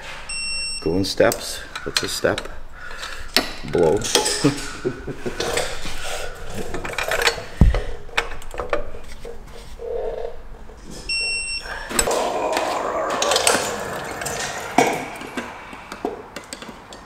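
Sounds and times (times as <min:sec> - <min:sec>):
hand tools clicking on metal: 0:11.9 - 0:17.0.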